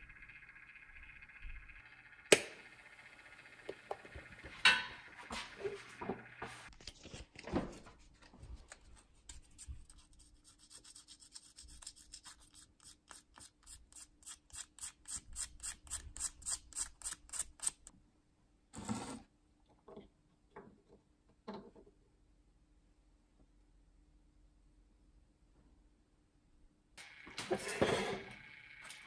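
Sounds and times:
sandpaper rubbing: 9.2 - 17.9.

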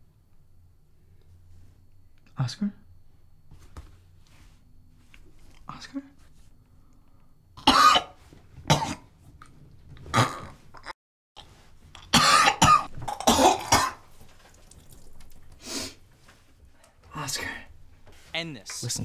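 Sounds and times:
man coughing and gagging: 7.6 - 9.1, 12.0 - 14.0.

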